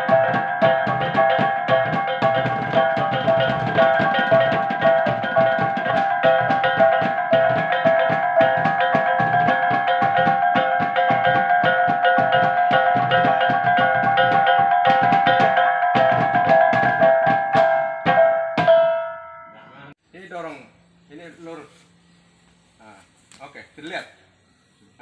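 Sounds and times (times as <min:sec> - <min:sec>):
barrel drum beats: 0:00.0 - 0:19.3
gongs struck in interlocking pattern: 0:00.0 - 0:19.6.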